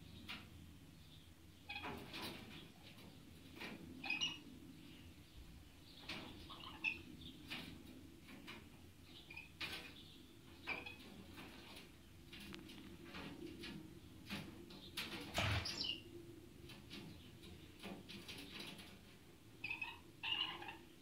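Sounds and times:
claws and beaks scratching on wire: 16.6s - 20.8s.

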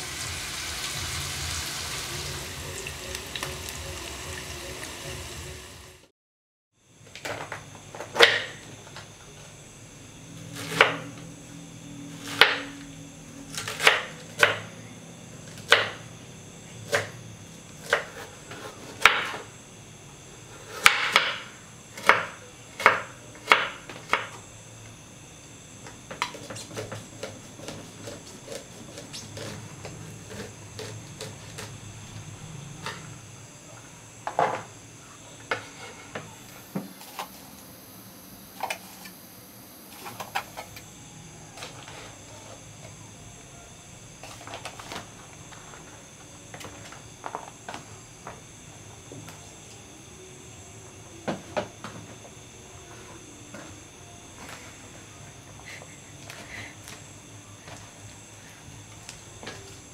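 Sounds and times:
knife chopping on wooden board: 22.0s - 24.4s.

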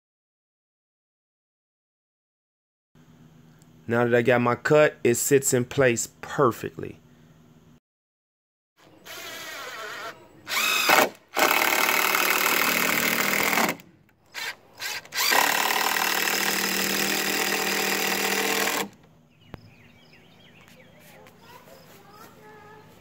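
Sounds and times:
cordless drill driving screws: 9.0s - 19.0s.

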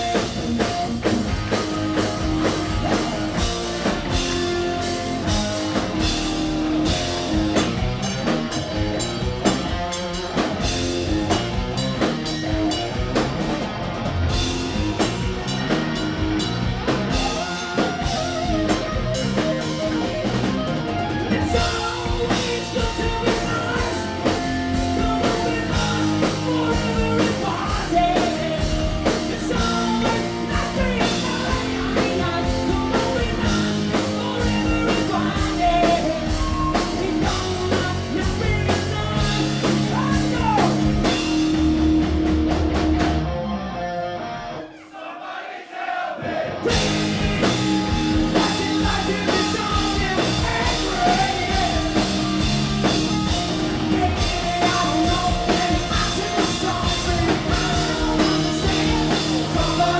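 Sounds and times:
live rock band playing: 0.0s - 44.8s, 46.4s - 59.9s
person singing: 21.2s - 41.0s, 46.6s - 52.5s, 53.7s - 59.9s.

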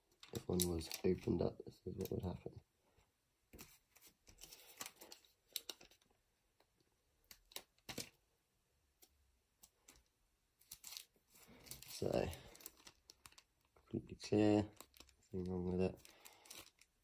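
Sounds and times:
plastic sleeve crinkling: 0.1s - 2.4s, 3.6s - 6.1s, 9.7s - 17.0s.

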